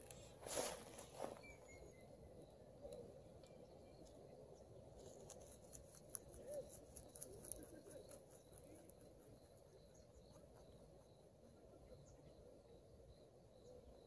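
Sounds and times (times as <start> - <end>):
rabbit chewing leaves: 2.6 - 12.0.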